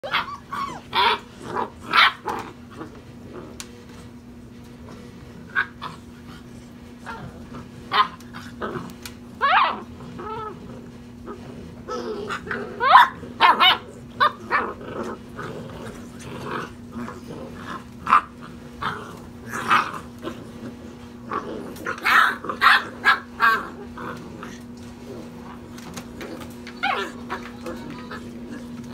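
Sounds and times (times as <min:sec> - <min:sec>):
puppy whines: 0:00.0 - 0:02.9, 0:09.4 - 0:10.7, 0:25.5 - 0:28.9
puppies yipping and growling: 0:00.0 - 0:04.3, 0:05.0 - 0:28.9.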